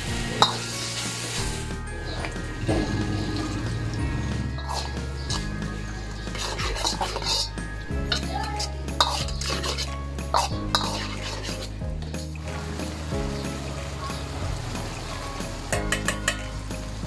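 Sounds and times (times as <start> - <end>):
metal spatula scraping a wok: 9.0 - 11.7.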